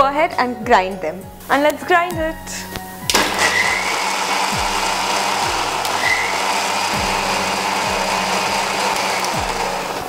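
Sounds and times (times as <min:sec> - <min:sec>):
mixer grinder running: 0:03.1 - 0:10.0.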